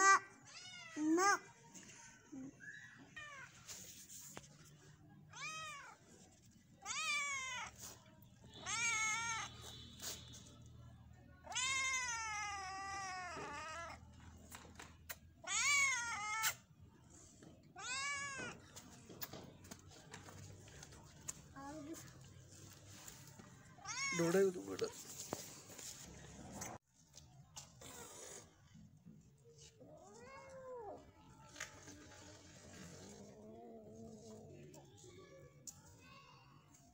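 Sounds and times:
cat meowing: 0:08.6 - 0:09.5, 0:11.4 - 0:14.0.

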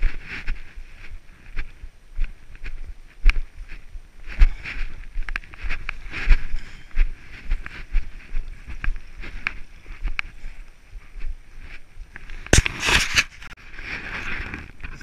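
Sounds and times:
footsteps on rocky path: 0:00.0 - 0:15.0
wind noise on microphone: 0:00.0 - 0:15.0.

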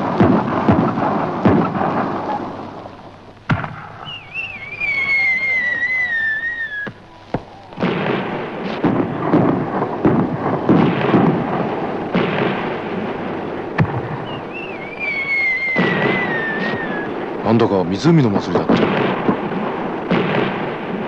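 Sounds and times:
fireworks booming: 0:00.0 - 0:21.0
firework whistle falling: 0:03.5 - 0:11.5, 0:13.8 - 0:17.4.

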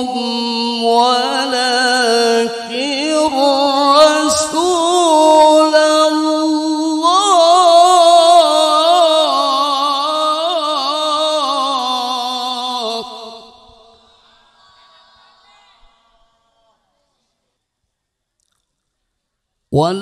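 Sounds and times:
man reciting melodically into microphone: 0:00.0 - 0:14.1, 0:19.7 - 0:20.0.

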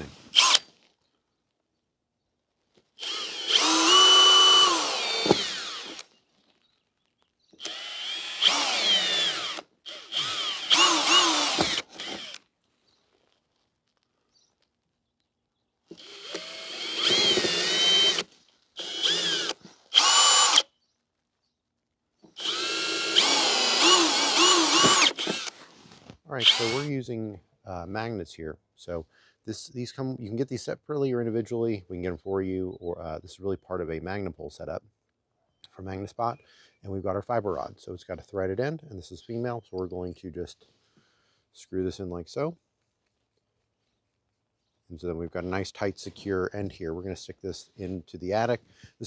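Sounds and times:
cordless drill whining: 0:00.0 - 0:00.7, 0:03.0 - 0:06.1, 0:07.6 - 0:12.4, 0:15.9 - 0:20.7, 0:22.3 - 0:25.7, 0:26.4 - 0:26.9.

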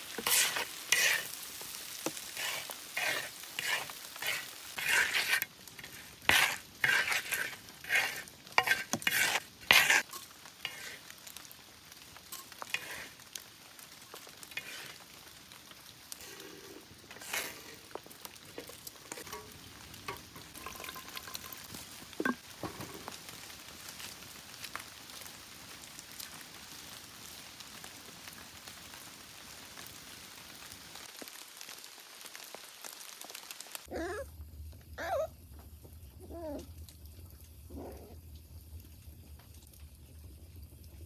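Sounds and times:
food sizzling: 0:00.0 - 0:41.0
puppy whimpering: 0:33.9 - 0:34.3, 0:35.0 - 0:35.3, 0:36.2 - 0:36.7.

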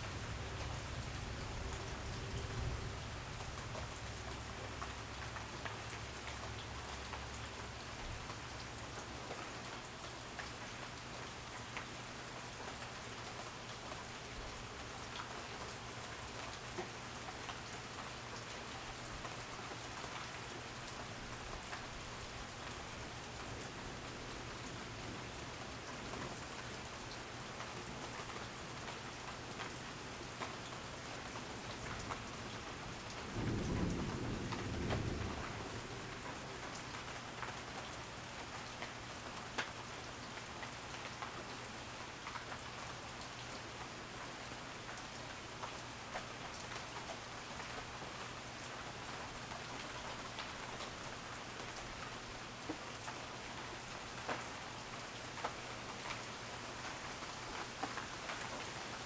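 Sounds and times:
steady rain falling: 0:00.0 - 0:59.0
low rumble of thunder: 0:00.4 - 0:04.0, 0:33.0 - 0:36.8.

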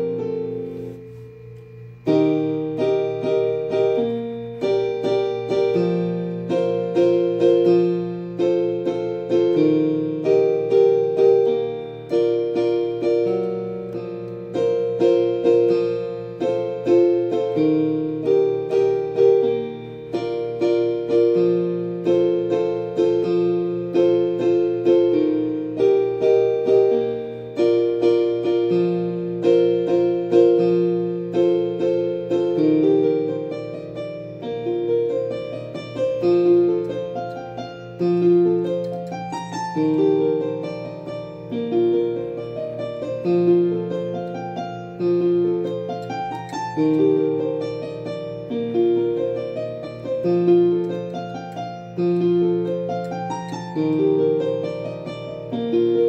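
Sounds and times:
solo piano melody: 0:00.0 - 0:56.0.

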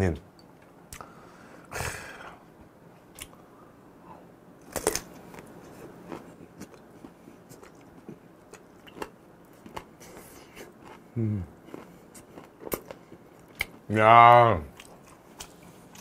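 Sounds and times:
chewing with crisp crunches: 0:04.6 - 0:13.9, 0:14.7 - 0:16.0.

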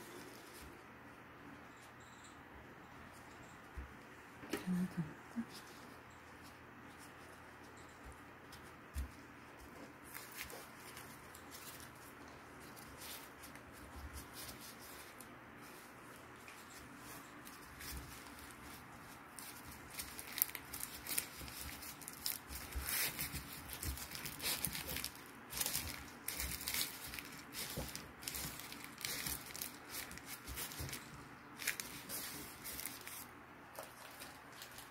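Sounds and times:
crinkling of seaweed sheet and gloves: 0:09.6 - 0:34.9.

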